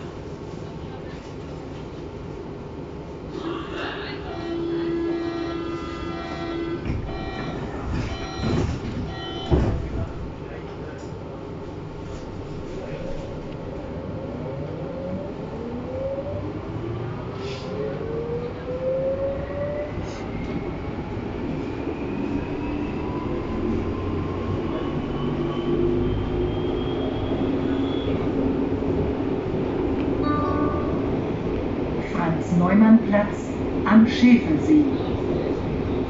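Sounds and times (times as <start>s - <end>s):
train running rumble: 0.0s - 14.8s.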